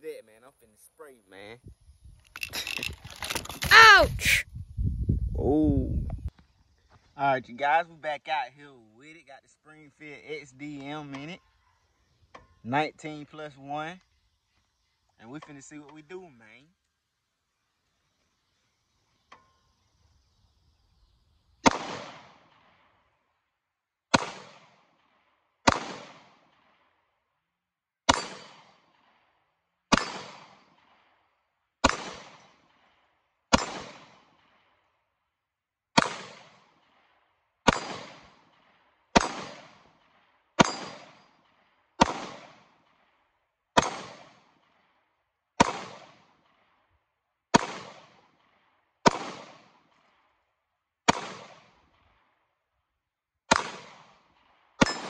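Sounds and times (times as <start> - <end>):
pistol shots: 21.6 - 22.6, 24.1 - 24.7, 25.6 - 26.6, 28.1 - 28.8, 29.9 - 30.8, 31.8 - 32.6, 33.5 - 34.2, 36.0 - 36.6, 37.6 - 38.4, 39.1 - 39.9, 40.6 - 41.2, 42.0 - 42.7, 43.8 - 44.5, 45.6 - 46.3, 47.5 - 48.2, 49.0 - 49.8, 51.1 - 51.7, 53.5 - 55.0.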